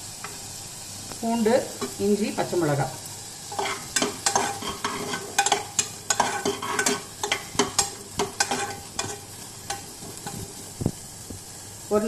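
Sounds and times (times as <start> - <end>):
faint sizzle: 0.0 - 12.0
spoon scraping a saucepan: 3.5 - 10.4.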